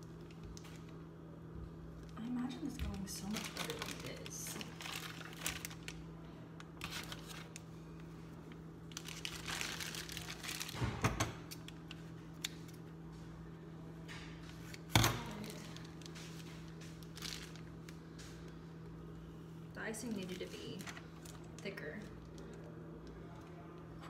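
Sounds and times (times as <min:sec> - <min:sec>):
steady low hum: 0:00.0 - 0:24.0
plastic bags crinkling: 0:02.0 - 0:12.8, 0:14.6 - 0:18.6, 0:20.0 - 0:22.7.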